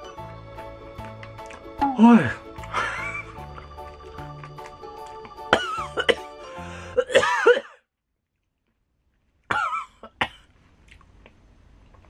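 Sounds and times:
man coughing and gasping: 5.5 - 7.9, 9.5 - 10.4.

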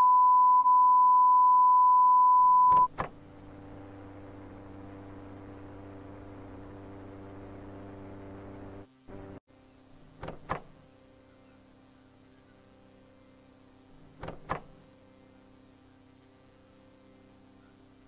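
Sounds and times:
test tone beep: 0.0 - 2.9
clicks: 2.7 - 3.1
low electrical hum with hiss: 2.9 - 18.0.

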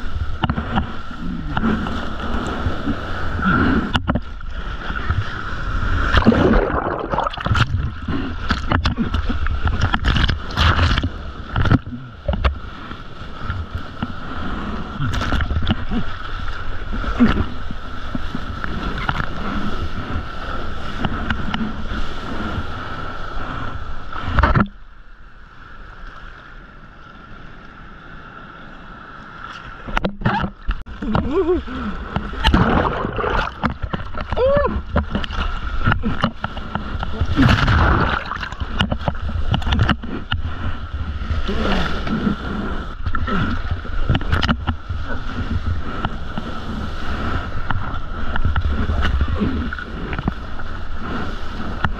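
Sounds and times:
sea water sloshing and splashing: 0.0 - 25.0, 29.0 - 51.9
water splashes against camera: 6.0 - 12.6, 29.5 - 40.5.

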